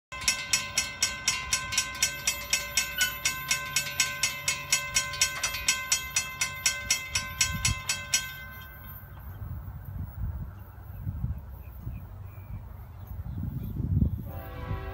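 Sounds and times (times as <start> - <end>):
railroad crossing bell ringing: 0.1 - 9.5.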